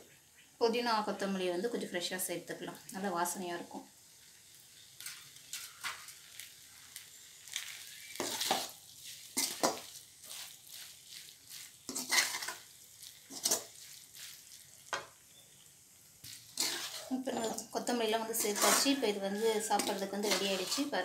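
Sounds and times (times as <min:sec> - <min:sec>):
food sizzling in a pan: 0:00.1 - 0:21.0
metal spoon scraping a pan: 0:05.0 - 0:06.5, 0:07.5 - 0:15.2, 0:16.2 - 0:21.0.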